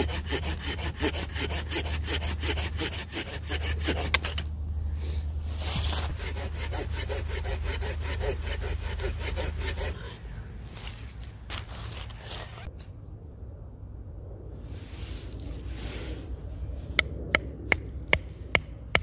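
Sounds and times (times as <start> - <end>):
hand saw cutting wood: 0.0 - 4.5, 5.6 - 10.0.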